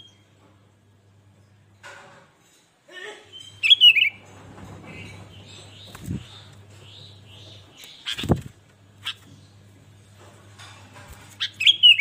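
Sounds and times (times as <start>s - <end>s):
bird chirping: 3.3s - 4.2s, 4.9s - 8.4s, 11.4s - 12.0s.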